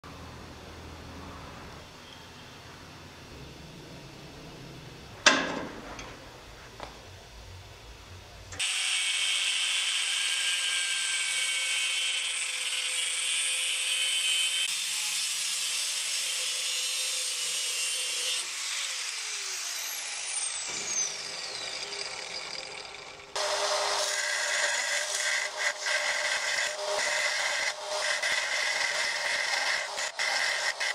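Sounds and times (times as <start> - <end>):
angle grinder cutting metal: 8.6 - 30.9.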